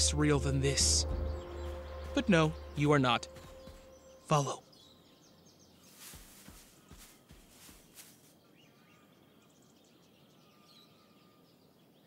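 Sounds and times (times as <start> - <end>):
faint bird chirps: 1.1 - 12.0
foliage rustling: 5.7 - 8.6.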